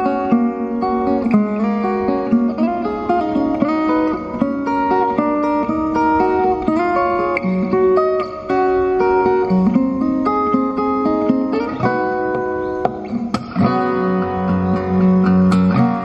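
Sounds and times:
fingerstyle acoustic guitar: 0.0s - 16.0s.

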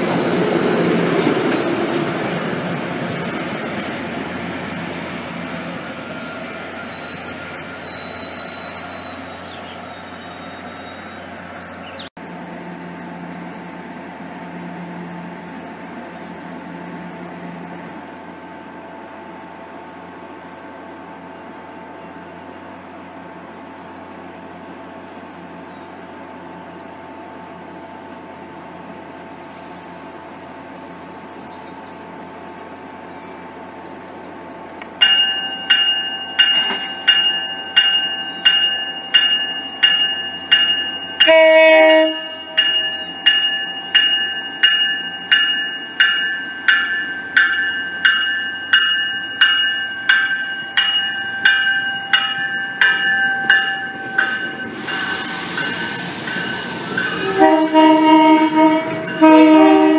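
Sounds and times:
train arriving: 0.0s - 59.9s
train hiss: 29.4s - 32.8s, 53.8s - 59.9s
train horn blast: 41.2s - 42.6s, 57.2s - 59.9s
bell ringing: 42.2s - 57.4s.

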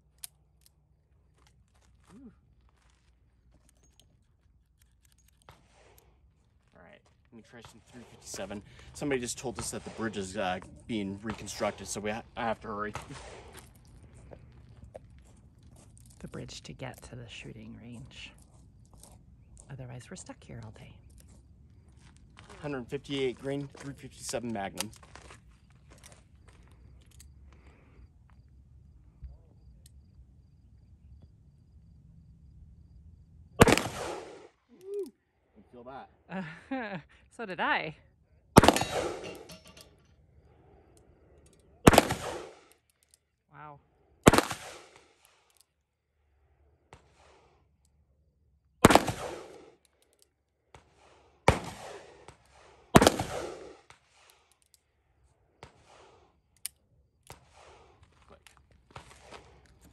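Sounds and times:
revolver gunshot: 9.5s - 10.5s, 12.9s - 13.6s, 33.6s - 34.5s, 38.6s - 39.5s, 41.8s - 42.6s, 44.2s - 45.0s, 48.8s - 49.7s, 51.5s - 53.9s
revolver shots echoing: 33.6s - 34.4s, 38.6s - 39.5s, 41.9s - 42.6s, 48.8s - 49.5s, 53.0s - 53.7s.

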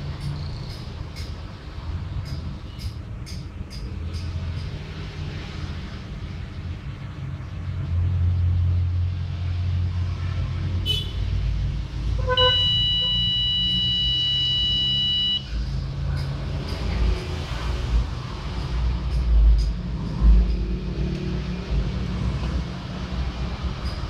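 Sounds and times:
timer alarm beep: 12.4s - 15.5s.

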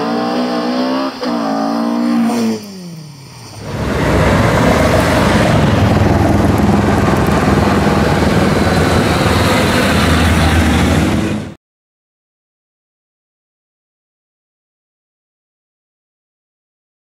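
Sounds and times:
rally car engines running hard: 0.0s - 11.6s.

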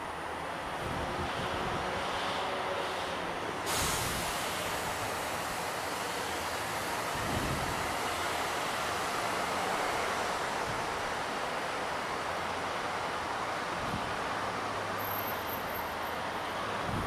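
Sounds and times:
traffic rumbling in a tunnel: 0.0s - 17.0s
hiss: 2.2s - 10.6s.

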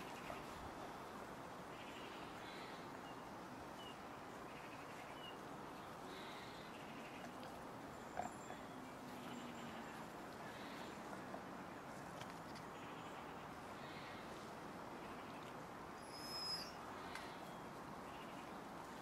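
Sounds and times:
outdoor background hiss: 0.0s - 19.0s
faint bird chirps: 1.7s - 11.1s, 15.0s - 18.6s.

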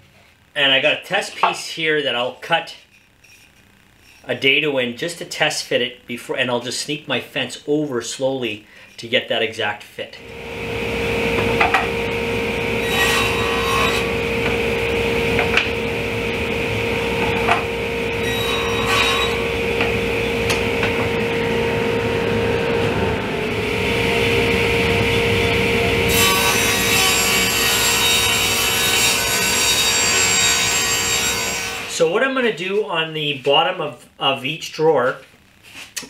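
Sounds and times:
table saw humming: 10.2s - 32.0s
saw blade cutting wood: 12.7s - 14.7s, 17.2s - 21.2s, 26.1s - 32.0s.

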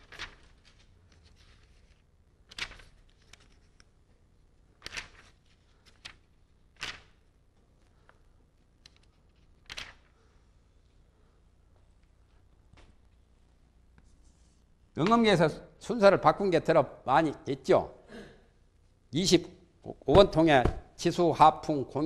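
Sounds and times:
steady low hum: 0.0s - 22.0s
faint scratchy rustles: 13.9s - 14.8s.

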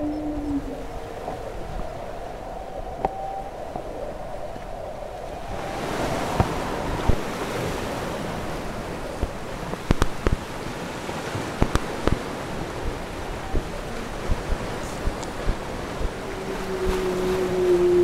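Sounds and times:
wind buffeting microphone: 0.0s - 18.0s
sea water lapping: 5.2s - 18.0s.

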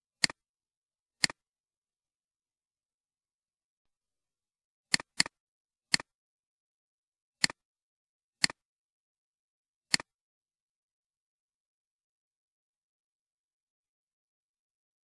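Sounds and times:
computer mouse clicks: 0.2s - 0.4s, 1.2s - 1.4s, 4.9s - 6.1s, 7.4s - 7.6s, 8.4s - 8.6s, 9.9s - 10.1s.

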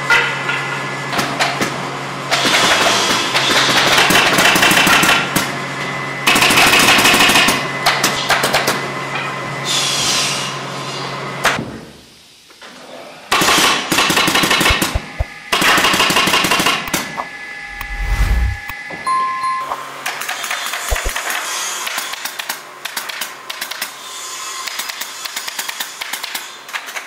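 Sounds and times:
steady low hum: 14.7s - 15.4s, 17.6s - 18.7s.

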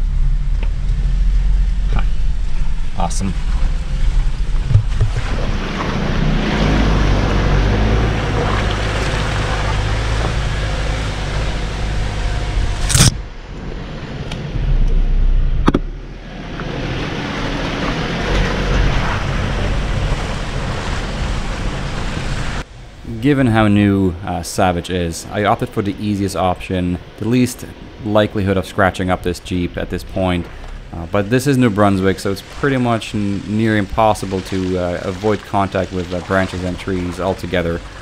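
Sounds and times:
engine running at low revs: 0.0s - 38.0s.

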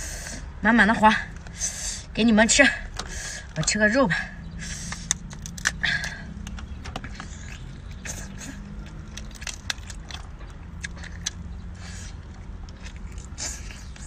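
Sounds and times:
sucking and biting: 4.5s - 14.0s
crab shell cracking: 4.9s - 5.8s, 8.8s - 11.4s.

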